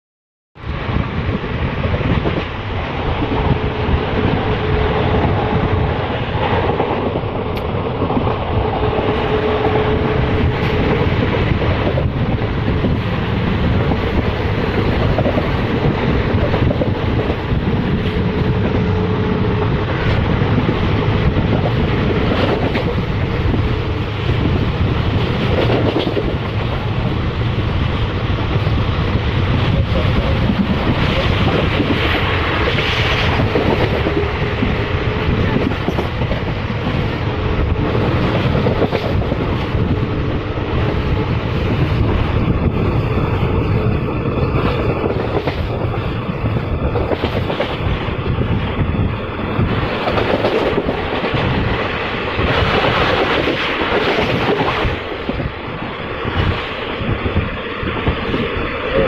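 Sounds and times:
approaching train noise: 0.6 - 59.0
long steady train horn: 8.6 - 10.9, 18.0 - 20.0.

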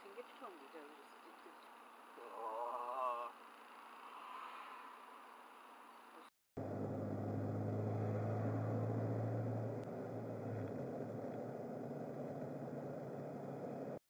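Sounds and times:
car engine hum: 6.6 - 14.0
road noise inside car: 6.6 - 14.0.

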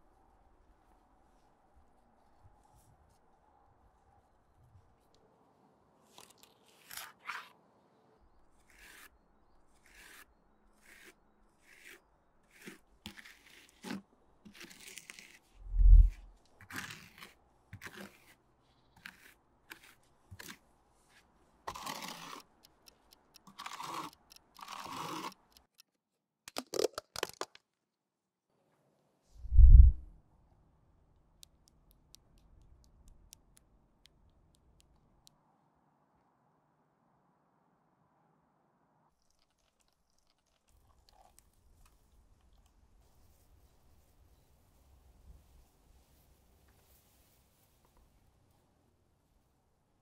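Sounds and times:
spatula scraping putty: 9.7 - 18.4, 21.7 - 25.8
sharp clicks: 21.7 - 25.9, 31.4 - 35.3.

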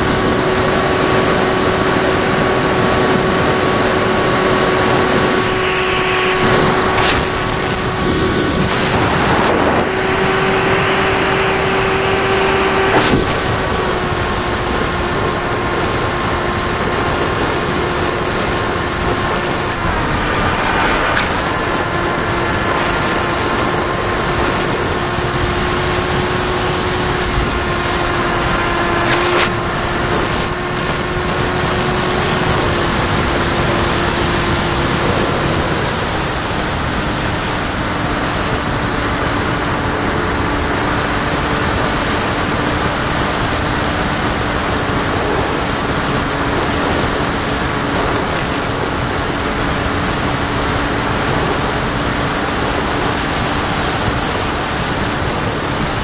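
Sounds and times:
model airplane motor whining: 0.0 - 56.0
wind rushing: 4.1 - 11.9.

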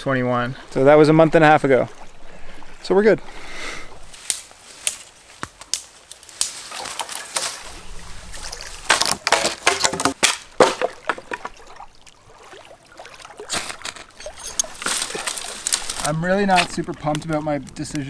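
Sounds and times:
dry wood cracking: 4.2 - 11.9, 13.4 - 18.0.

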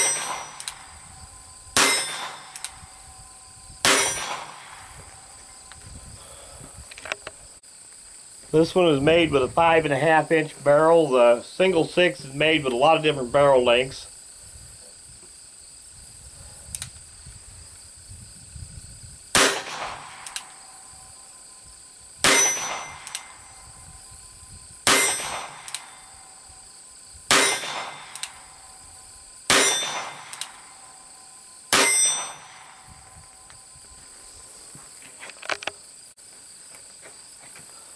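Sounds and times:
revolver gunshots: 0.0 - 1.0, 1.7 - 3.0, 3.8 - 5.3, 19.3 - 20.6, 22.2 - 23.4, 24.8 - 26.2, 27.3 - 28.7, 29.5 - 30.9, 31.7 - 32.9.

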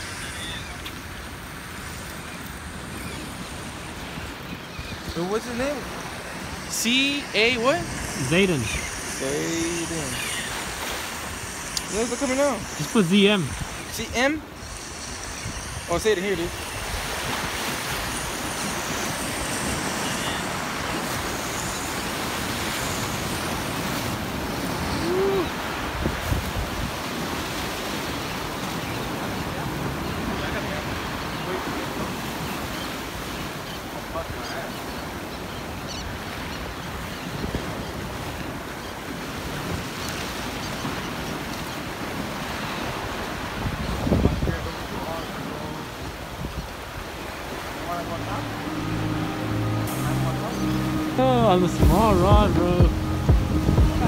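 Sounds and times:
wind on microphone: 0.0 - 33.3, 37.0 - 45.5, 46.1 - 48.2
surf washing over rocks: 0.0 - 35.8, 36.4 - 54.0
wind buffeting microphone: 43.5 - 44.7.

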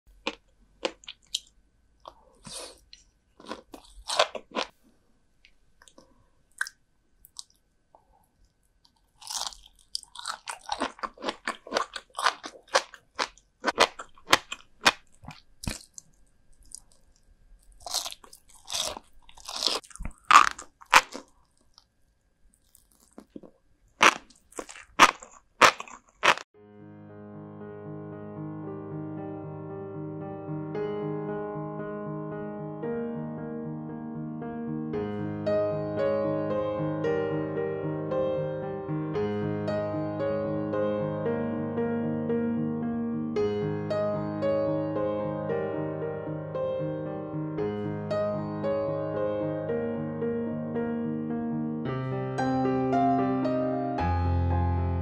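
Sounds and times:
crunching and chewing: 0.2 - 4.8, 8.8 - 26.5.

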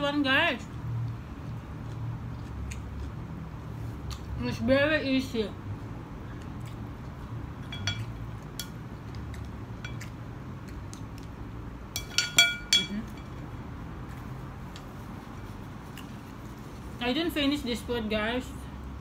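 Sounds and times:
utensils clinking on ceramic bowl: 7.6 - 8.8, 12.0 - 13.5.

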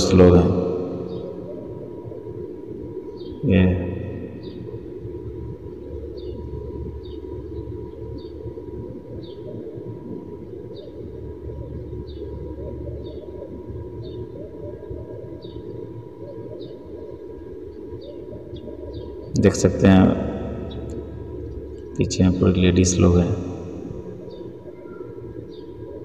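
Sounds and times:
high bird chirps: 0.8 - 1.6.

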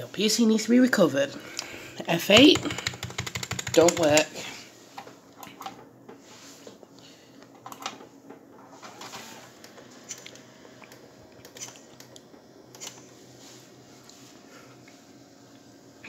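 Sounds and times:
computer equipment hum: 0.0 - 16.0.

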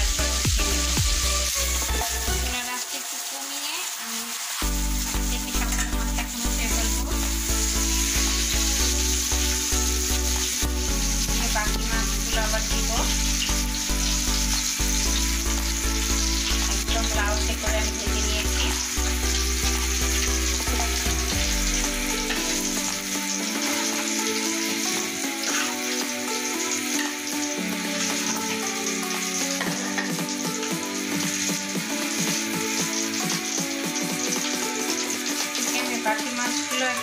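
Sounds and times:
instrumental music with bass: 0.0 - 2.4, 4.6 - 23.4
fish frying in hot oil: 0.0 - 37.0.

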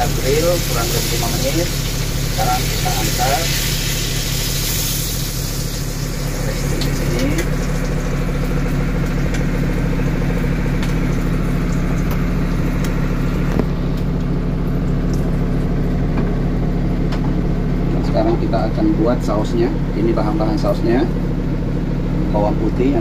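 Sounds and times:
low machine hum: 0.0 - 23.0.

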